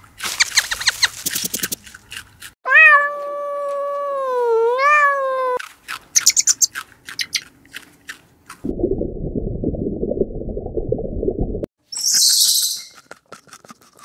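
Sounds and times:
cat meowing: 2.7s - 5.6s
dense low noise: 8.7s - 11.7s.

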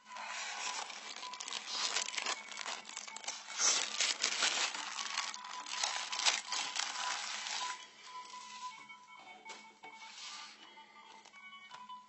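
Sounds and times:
crinkling and crackling: 0.0s - 8.8s.

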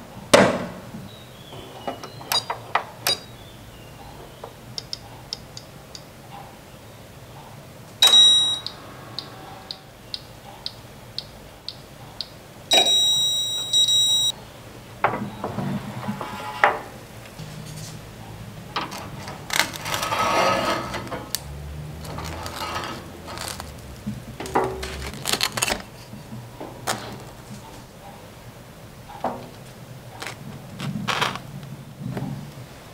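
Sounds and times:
toaster chime: 8.0s - 9.8s, 12.7s - 14.3s
timer ticking: 8.0s - 14.3s
rustling: 15.3s - 28.0s, 29.4s - 32.6s.

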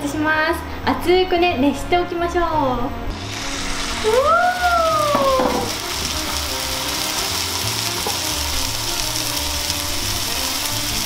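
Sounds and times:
meat sizzling in a frying pan: 3.1s - 11.0s.

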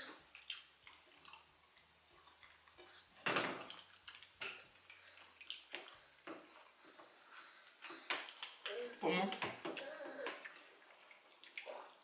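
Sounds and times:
wet chewing mouth noises: 0.0s - 7.0s, 9.8s - 12.0s.

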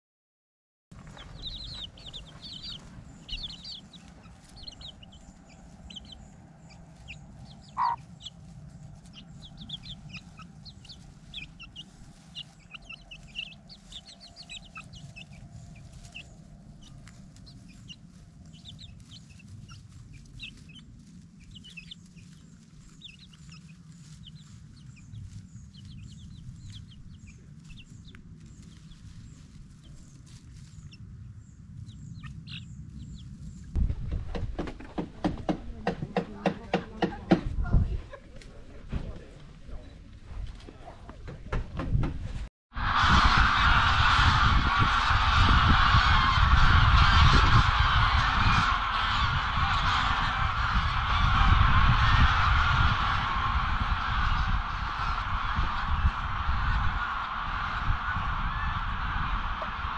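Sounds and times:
chicks peeping: 1.0s - 40.6s, 43.1s - 59.9s
loud bird call: 1.2s - 8.4s, 42.8s - 59.9s.

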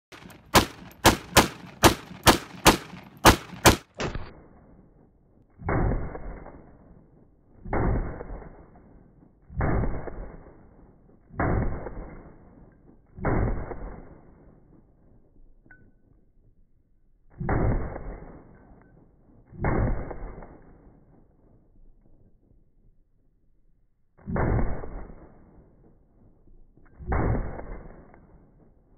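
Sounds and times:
muffled gunshots: 0.1s - 4.4s, 27.1s - 28.1s
pistol gunshots: 0.1s - 4.4s.

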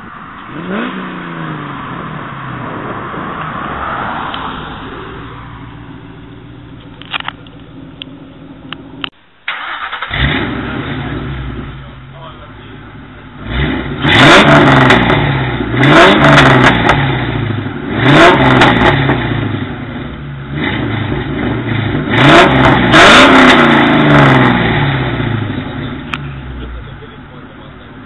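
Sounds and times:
car engine revving from idle: 9.5s - 12.1s, 13.0s - 28.0s.

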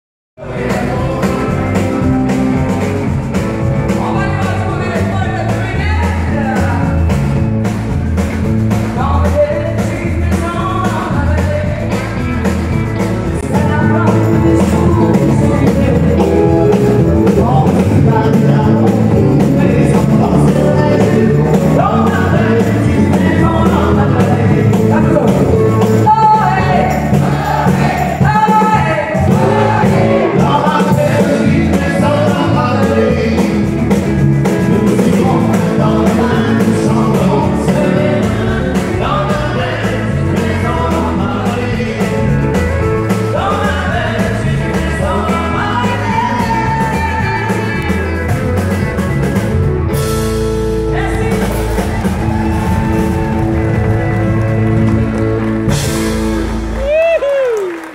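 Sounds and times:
man singing: 0.4s - 7.4s, 8.6s - 12.5s, 13.2s - 49.5s
country band playing: 0.4s - 57.9s
woman singing: 43.3s - 48.1s.

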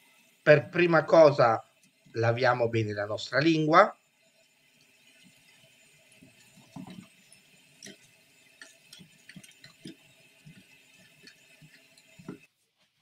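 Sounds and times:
tap water running into sink: 5.1s - 12.5s.

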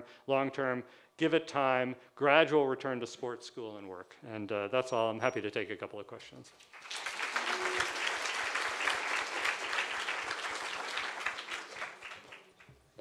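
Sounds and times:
audience applauding: 6.6s - 12.8s.

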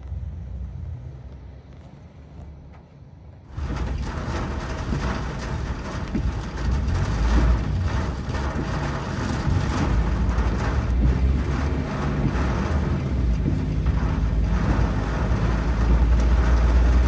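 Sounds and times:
vehicle rushing rumble: 0.0s - 17.0s.

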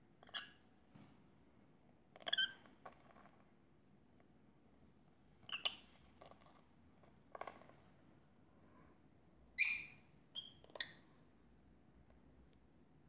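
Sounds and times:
lovebirds chirping: 9.6s - 10.9s.

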